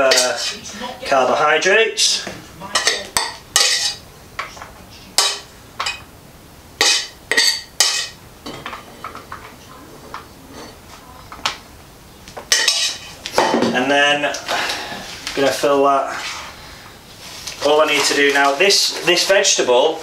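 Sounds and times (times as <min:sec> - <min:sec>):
metal spoon scraping saucepan: 0:00.0 - 0:00.7, 0:02.8 - 0:04.0, 0:06.8 - 0:09.2, 0:10.5 - 0:10.8, 0:12.5 - 0:13.2.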